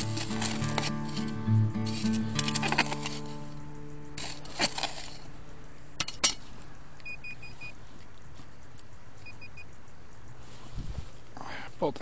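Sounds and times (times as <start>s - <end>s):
digging tool striking stony soil: 0.0s - 3.5s, 4.1s - 5.3s, 6.0s - 6.5s
metal detector beeps: 7.0s - 7.8s, 9.2s - 9.7s.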